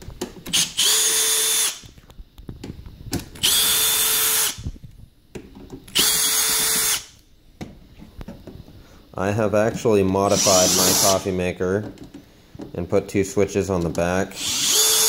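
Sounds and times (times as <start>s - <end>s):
cordless drill motor whine: 0.5s - 1.9s, 3.4s - 4.7s, 5.9s - 7.2s, 10.3s - 11.3s, 14.4s - 15.0s.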